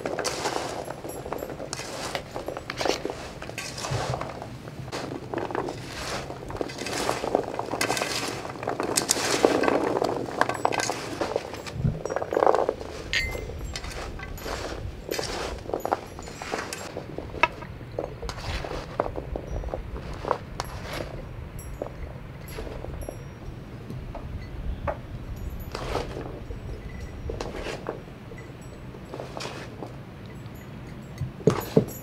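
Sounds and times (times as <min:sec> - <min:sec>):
crunchy vegetables rustling: 0:00.0 - 0:23.2, 0:25.6 - 0:28.0.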